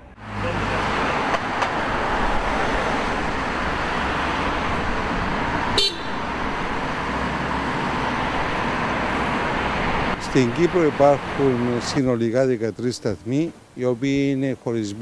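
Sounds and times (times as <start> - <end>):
road traffic: 0.0 - 15.0
car horn toot: 5.8 - 6.3.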